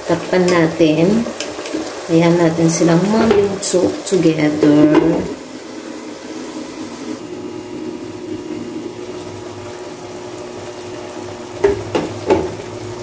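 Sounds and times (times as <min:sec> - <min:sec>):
pot bubbling: 0:00.0 - 0:13.0.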